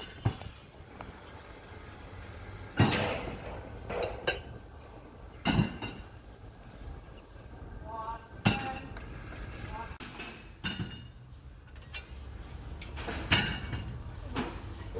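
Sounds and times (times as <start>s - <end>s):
metallic clanks and knocks: 2.7s - 6.2s, 10.0s - 14.8s.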